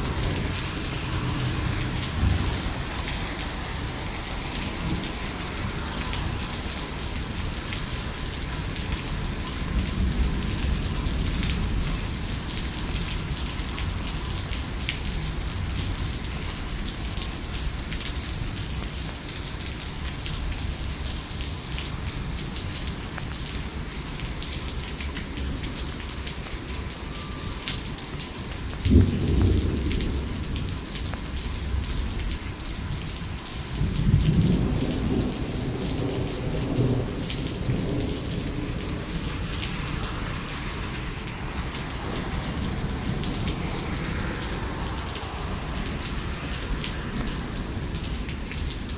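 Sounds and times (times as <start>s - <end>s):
thunder clap and rumble: 0.0s - 7.6s, 28.9s - 32.3s, 33.2s - 48.9s
heavy rain on pavement: 0.0s - 48.9s.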